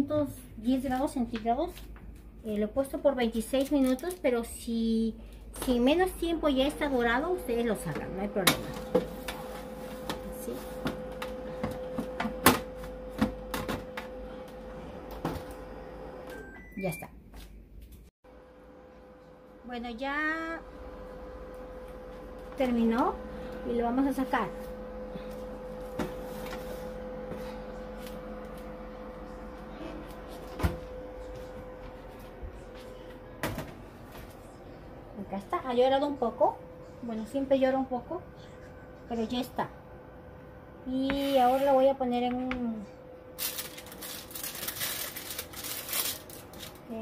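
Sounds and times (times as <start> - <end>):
steady hum: 0.0 - 16.3, 17.6 - 47.0.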